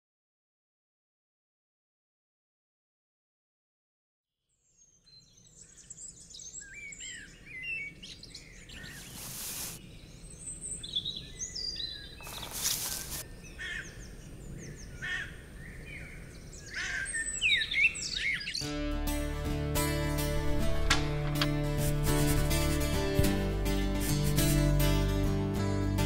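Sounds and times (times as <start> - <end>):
songbirds chirping and whistling: 4.7 - 18.7
rising hiss: 8.9 - 9.8.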